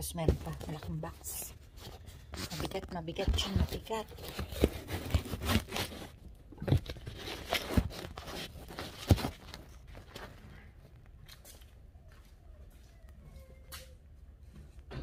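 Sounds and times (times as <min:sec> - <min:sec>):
handling knocks and rustles: 0:00.0 - 0:11.8.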